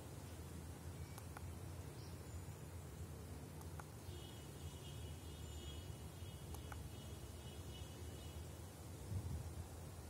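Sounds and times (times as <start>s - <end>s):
low rumble with hiss: 0.0s - 10.0s
faint high chirps: 0.9s - 8.5s.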